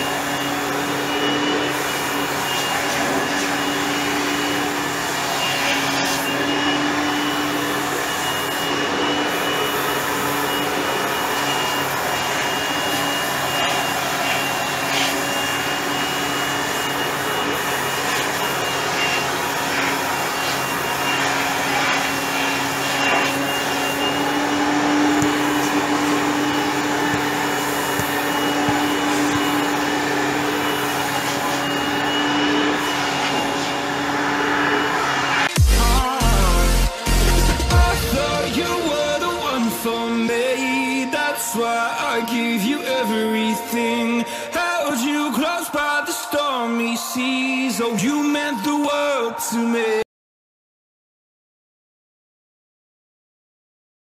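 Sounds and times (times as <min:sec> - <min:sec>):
air blower rush: 0:00.0 - 0:42.5
blower high whine: 0:00.0 - 0:49.9.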